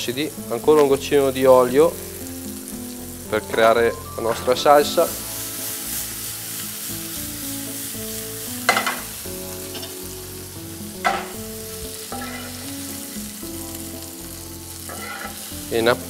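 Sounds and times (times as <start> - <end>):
tomatoes sizzling in oil: 0.0 - 16.0
spoon knocking against pan: 8.7 - 9.1, 11.0 - 11.4.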